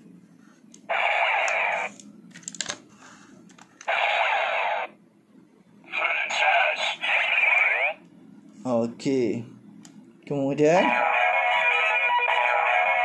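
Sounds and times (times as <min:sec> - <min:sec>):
toy electronic sound effects: 0:00.9 - 0:01.9, 0:03.9 - 0:04.9, 0:06.0 - 0:08.0, 0:10.9 - 0:13.0.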